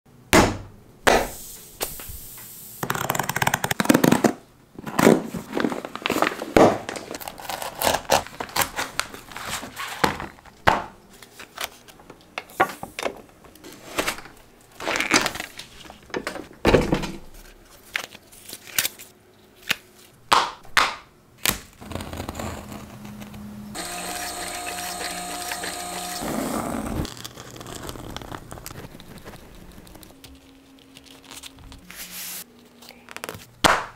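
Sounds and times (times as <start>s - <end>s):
mechanical hum with tones: 21.8s - 33.6s.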